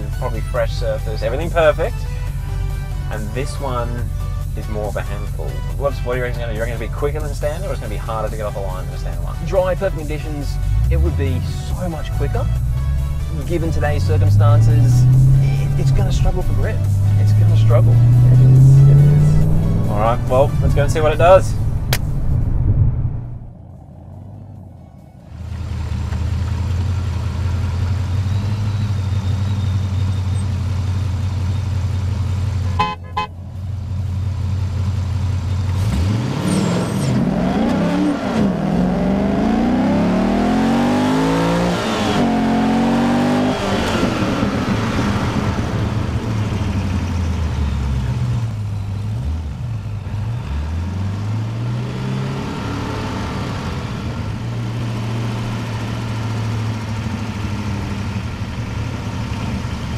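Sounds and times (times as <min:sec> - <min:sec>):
car engine idling: 0:00.0 - 0:35.8, 0:40.6 - 0:51.6, 0:52.9 - 0:59.9
car engine revving hard: 0:10.6 - 0:22.0, 0:35.6 - 0:59.9.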